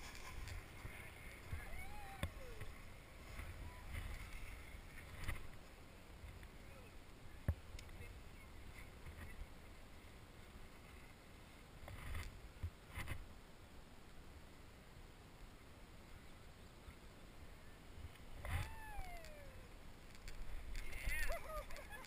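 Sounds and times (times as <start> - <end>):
wind rumbling on microphone: 0.0 - 13.4, 16.0 - 22.0
clicks and rustles: 20.0 - 22.0.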